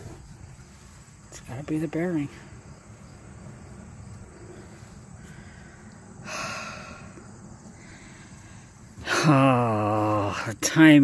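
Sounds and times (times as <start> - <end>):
person exhaling sharply: 5.2 - 7.2.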